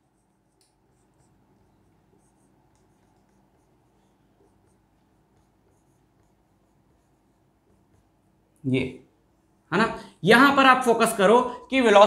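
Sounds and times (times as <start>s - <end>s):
marker squeaking on whiteboard: 0.0s - 8.3s.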